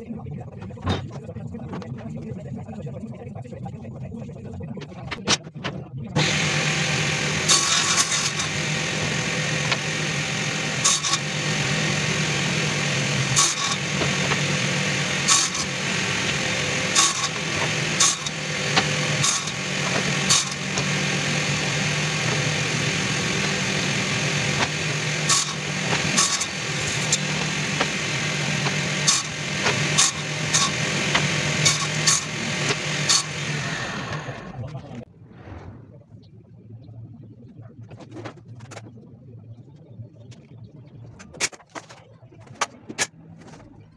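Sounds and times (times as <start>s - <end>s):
power tool motor humming: 6.2s - 34.5s.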